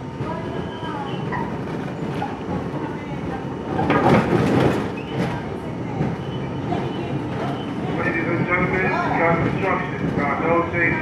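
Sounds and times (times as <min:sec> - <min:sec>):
train wheels clattering over rails: 0:00.0 - 0:10.9
train rumble: 0:00.0 - 0:11.0.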